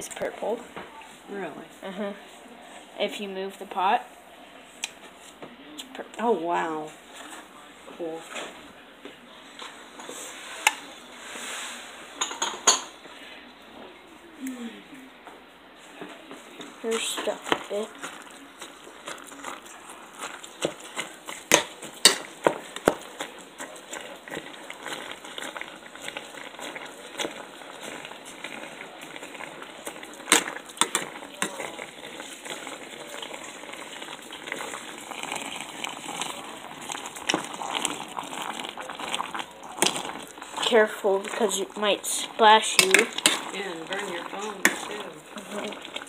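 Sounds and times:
clinks and knocks on pot: 12.2s - 12.9s, 21.5s - 23.0s
meat and onion sizzling: 16.6s - 46.0s.

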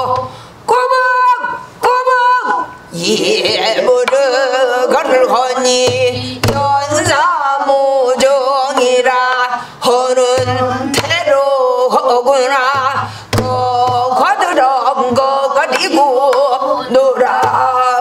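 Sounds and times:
woman singing with wide vibrato: 0.0s - 18.0s
sharp knocks: 5.7s - 7.2s, 12.7s - 16.5s.

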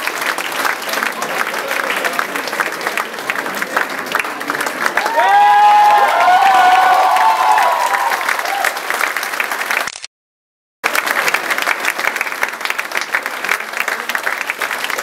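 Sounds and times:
audience applauding: 0.0s - 9.9s, 10.8s - 15.0s.

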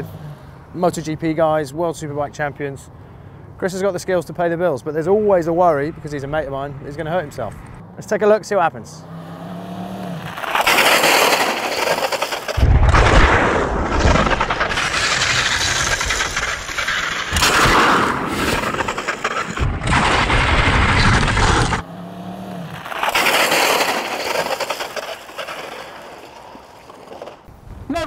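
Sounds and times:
motorcycle scraping on tarmac: 9.1s - 12.6s, 14.4s - 27.5s.

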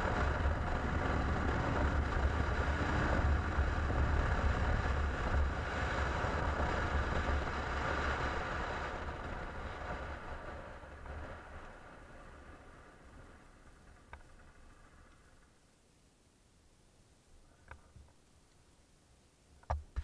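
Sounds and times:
wind rushing over microphone: 0.0s - 13.4s
motorcycle engine running: 0.0s - 15.0s.

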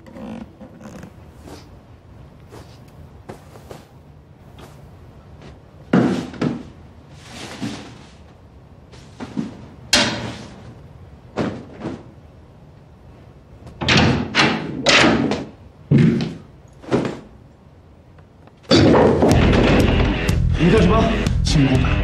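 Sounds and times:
heavy thuds and bangs: 18.7s - 20.4s
loud music: 19.3s - 22.0s.

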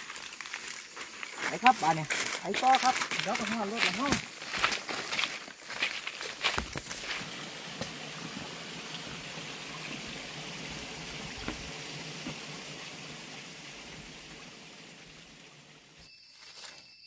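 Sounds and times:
stream running over rocks: 0.0s - 16.1s
faint footfalls on rock: 1.7s - 7.2s.

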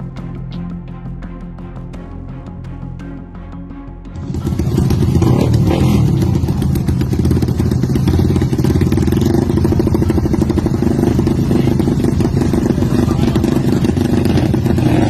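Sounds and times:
motorcycle engines revving: 4.2s - 15.0s.

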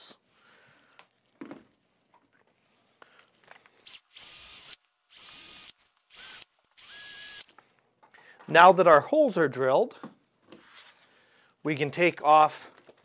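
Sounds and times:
cordless drill drilling into wood: 3.8s - 7.5s.

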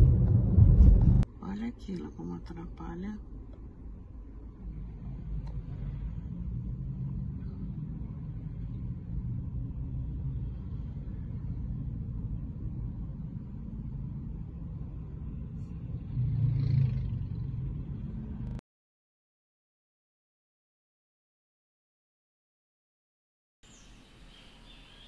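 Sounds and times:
city traffic rumble: 0.0s - 18.6s
vehicle passing close by: 15.8s - 18.6s.

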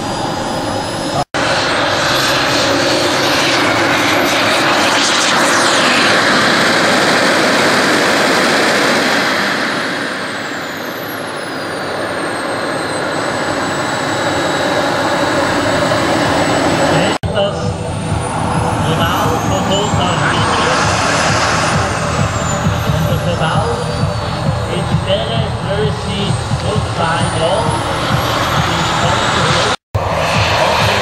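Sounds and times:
model jet turbine roar and whine: 0.0s - 31.0s.

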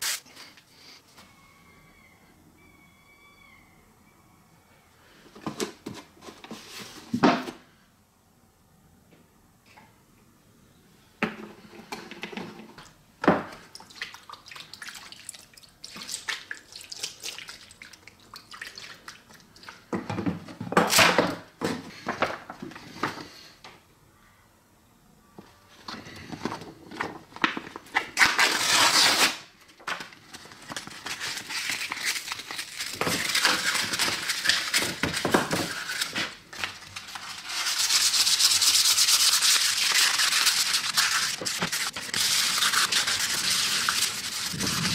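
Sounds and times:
wet-sanding painted metal: 0.0s - 0.2s, 37.4s - 44.9s
paper handling and rustling: 25.8s - 44.9s.

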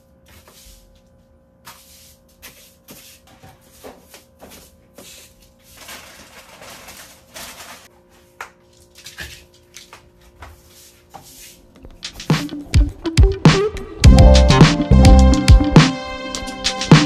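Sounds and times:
broom sweeping hard floor: 0.2s - 1.0s, 1.6s - 8.3s, 10.4s - 12.4s.

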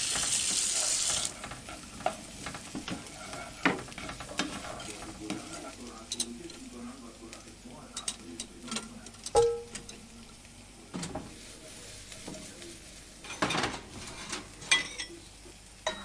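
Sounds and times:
food sizzling in a pot: 0.0s - 7.8s, 9.4s - 13.4s
ladle scraping pot: 0.8s - 6.3s
metal spoon clinking pot: 9.2s - 10.0s.

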